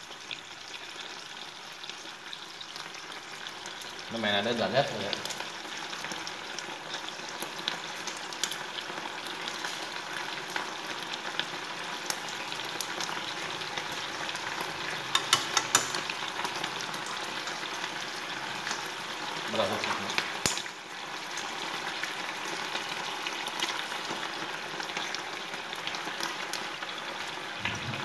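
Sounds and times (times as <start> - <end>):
paste sizzling in oil: 0.0 - 28.0.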